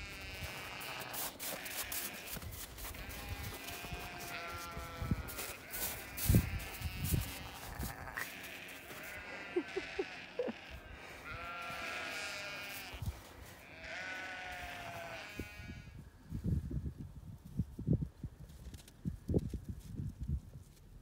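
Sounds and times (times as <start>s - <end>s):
sheep bleating: 0.0s - 15.9s.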